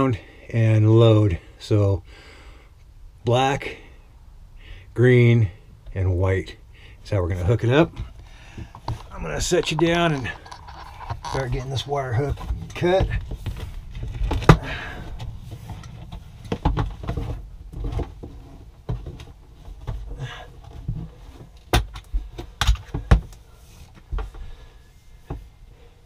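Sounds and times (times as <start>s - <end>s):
power cable handling noise: 7.9s - 24.4s.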